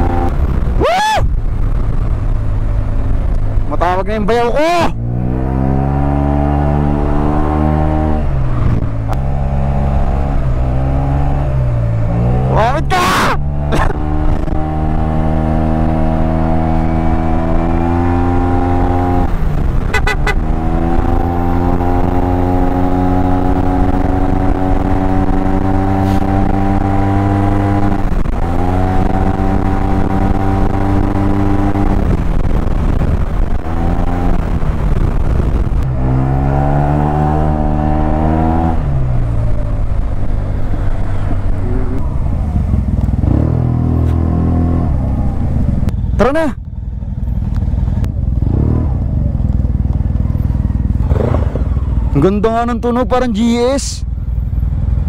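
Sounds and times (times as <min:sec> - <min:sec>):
wind rumble: 0:00.0 - 0:55.0
scooter engine revving: 0:47.7 - 0:52.2.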